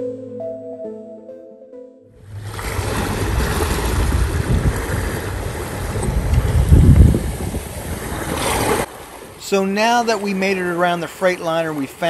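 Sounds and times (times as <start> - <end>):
background music: 0.0 - 2.2
wind rumbling on microphone: 2.2 - 8.9
water splashing along boat hull: 2.2 - 12.0.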